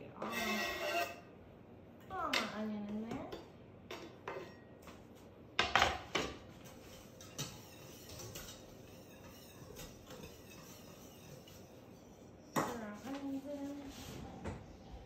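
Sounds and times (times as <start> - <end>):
spoon scraping and tapping pan: 5.6 - 11.9.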